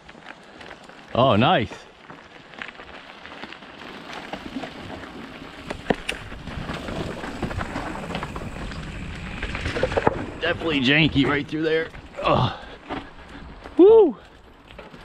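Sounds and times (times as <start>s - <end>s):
bike tyres and frame rattling: 0.0s - 15.0s.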